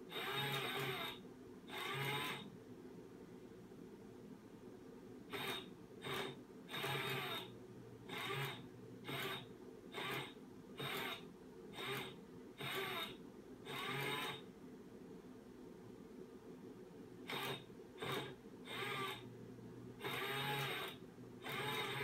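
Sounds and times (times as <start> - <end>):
toy motor whirring: 0.1 - 2.5, 5.3 - 7.5, 8.1 - 14.4, 17.2 - 19.3, 20.0 - 22.0.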